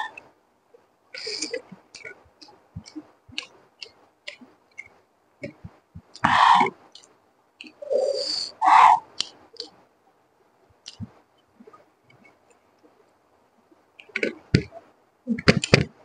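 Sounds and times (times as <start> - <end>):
chewing and wet mouth clicks: 1.4 - 6.2, 10.8 - 11.1.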